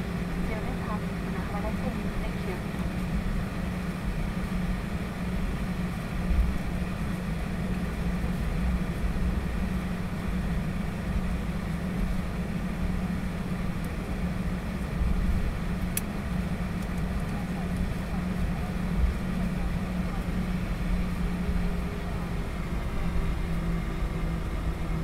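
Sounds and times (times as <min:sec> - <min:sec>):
jet engines idling: 0:00.0 - 0:25.0.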